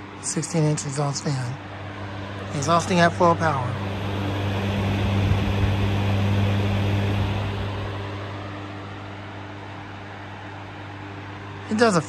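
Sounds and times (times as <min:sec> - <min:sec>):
fan air rush and motor hum: 0:00.0 - 0:12.0.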